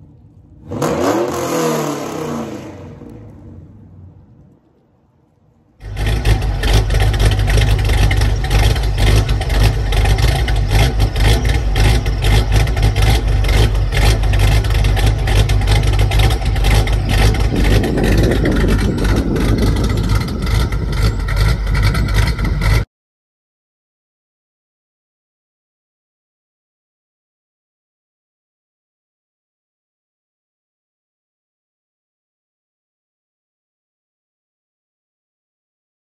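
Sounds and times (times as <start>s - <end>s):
deep lumpy vee eight idle: 5.8s - 22.8s.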